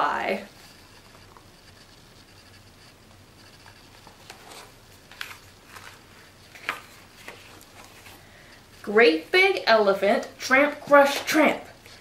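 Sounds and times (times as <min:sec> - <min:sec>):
paper rustles and taps: 0:04.0 - 0:08.0.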